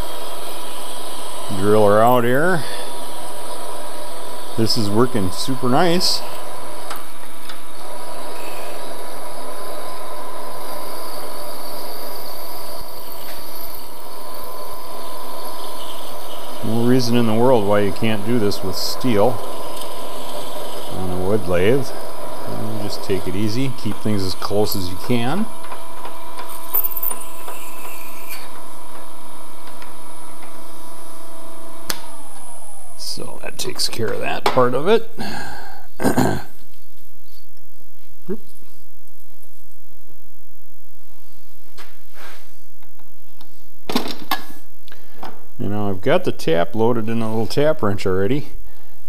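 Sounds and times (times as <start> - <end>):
lathe drilling steel whine: 0.0 - 35.9.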